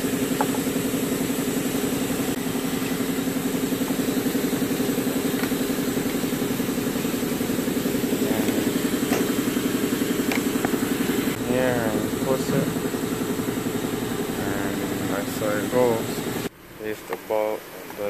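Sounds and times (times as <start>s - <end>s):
engine idling: 0.0s - 18.0s.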